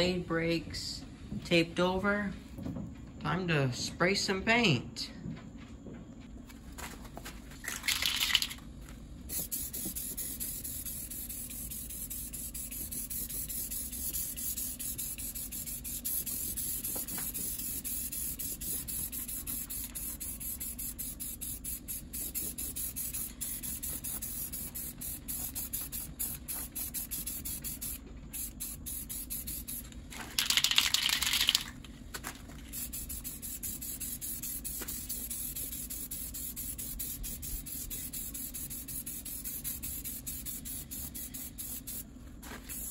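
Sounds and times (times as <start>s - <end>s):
spray paint can hissing: 7.7s - 8.6s, 9.3s - 31.8s, 32.7s - 42.9s.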